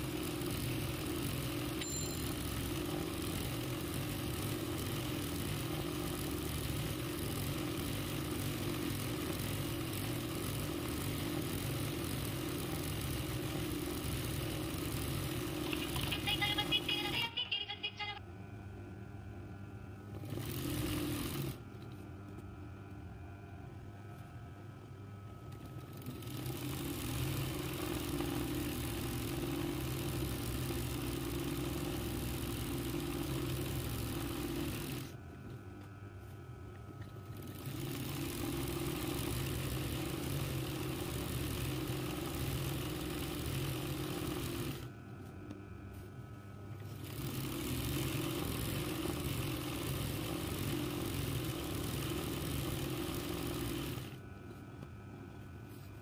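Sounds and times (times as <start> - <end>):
embroidery machine stitching: 0.0 - 17.3, 20.1 - 21.6, 25.6 - 35.2, 37.2 - 44.9, 46.8 - 54.2.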